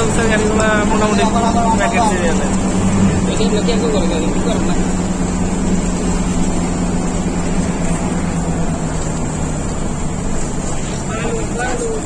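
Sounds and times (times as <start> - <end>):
coach engine drone: 0.0 - 12.0
road rumble: 0.0 - 12.0
steady engine hum: 0.0 - 12.0.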